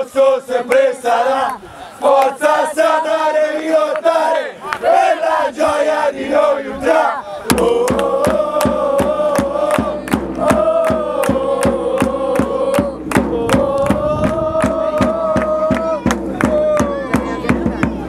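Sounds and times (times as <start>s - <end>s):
supporters chanting: 0.0s - 18.0s
steady drum beat: 7.5s - 18.0s.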